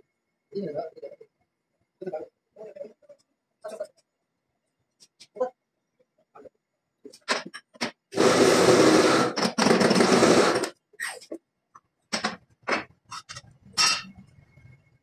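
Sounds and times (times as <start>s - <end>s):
hydraulic press running: 8.2s - 10.7s
metallic clanks and scrapes: 13.1s - 14.4s.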